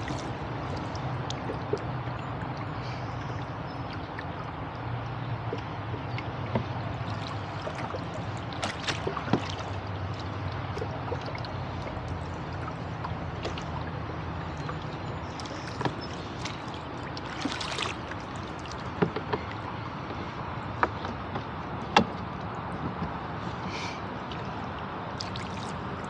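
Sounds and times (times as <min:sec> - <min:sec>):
water gurgling along boat hull: 0:00.0 - 0:26.0
oars knocking in oarlocks: 0:18.9 - 0:19.5.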